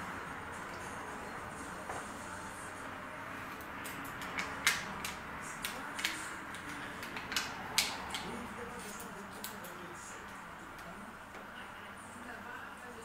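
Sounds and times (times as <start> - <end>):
clicks and taps of hand tools: 3.6 - 8.3.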